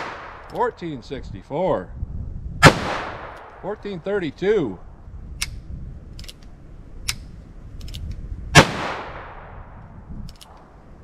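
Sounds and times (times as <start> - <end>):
revolver gunshot with echo: 2.6 - 3.4, 8.6 - 9.6
faint sharp clicks: 9.8 - 10.7.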